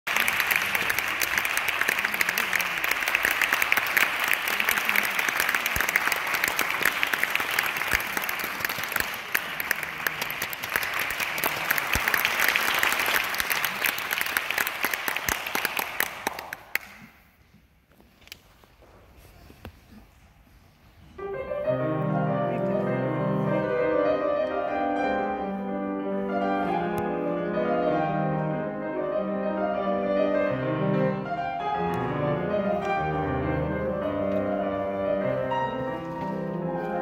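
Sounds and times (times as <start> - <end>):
audience applauding: 0.0 - 17.2.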